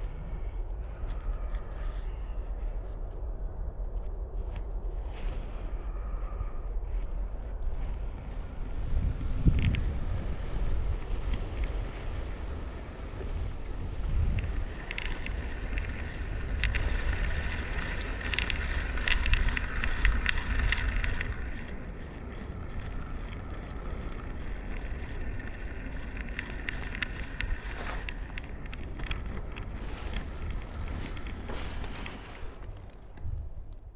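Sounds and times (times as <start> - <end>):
wind rumbling on microphone: 0.0 - 33.9
mount scratching along twine: 13.5 - 32.9.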